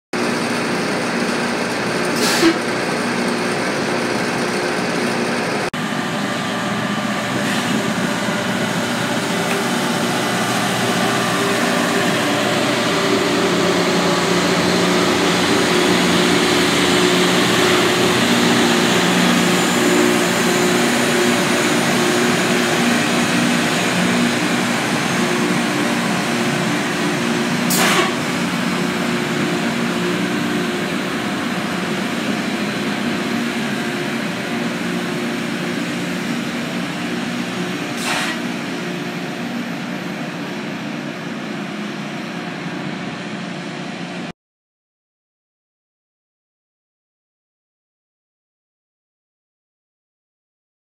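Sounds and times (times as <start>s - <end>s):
grinding stones hissing on rail: 0.2s - 5.6s, 7.4s - 41.1s
engine drone: 0.2s - 44.3s.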